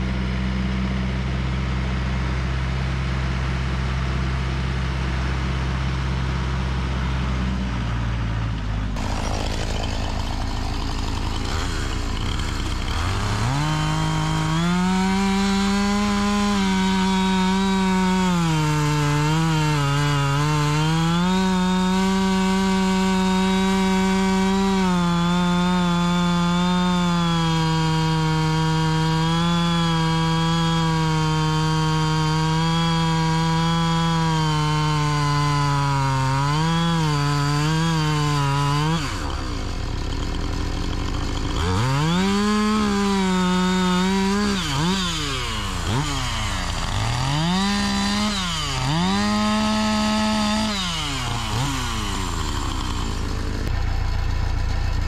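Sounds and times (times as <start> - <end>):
chainsaw cutting a log: 0.0 - 7.8, 8.9 - 55.0.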